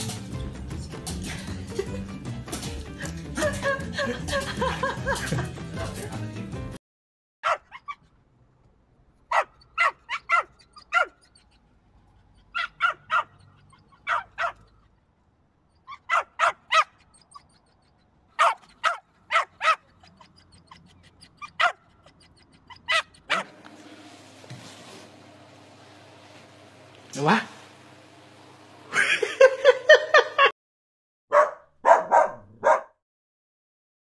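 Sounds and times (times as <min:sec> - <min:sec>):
puppy yapping: 0:07.4 - 0:08.1, 0:09.3 - 0:14.9, 0:15.7 - 0:23.6, 0:31.3 - 0:32.9.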